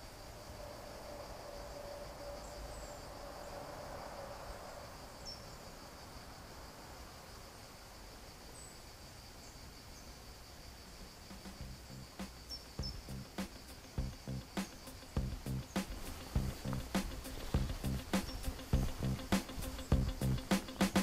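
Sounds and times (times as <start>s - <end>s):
insects chirring: 0.0s - 21.0s
bird chirps: 11.9s - 21.0s.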